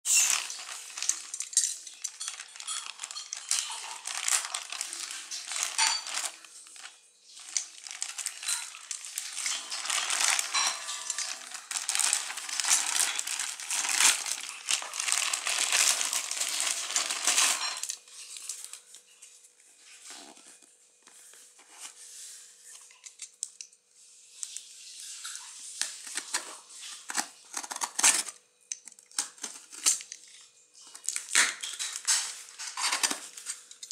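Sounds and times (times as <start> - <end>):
plastic mailer crinkling: 0.1 - 19.0, 26.0 - 33.9.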